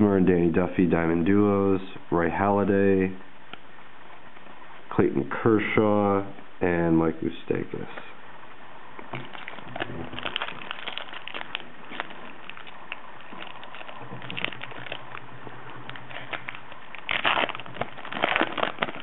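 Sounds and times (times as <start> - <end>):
foil wrapper crinkling and tearing: 9.1 - 19.0.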